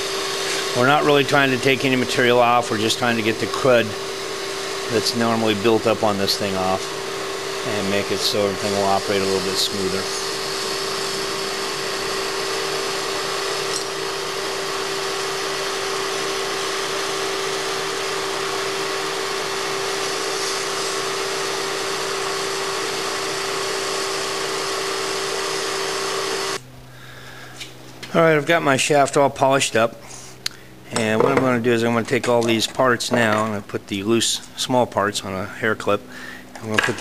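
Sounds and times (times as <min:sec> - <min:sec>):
emery cloth hissing on metal: 0:00.0 - 0:01.8, 0:06.2 - 0:26.6
metal lathe humming: 0:00.0 - 0:26.6.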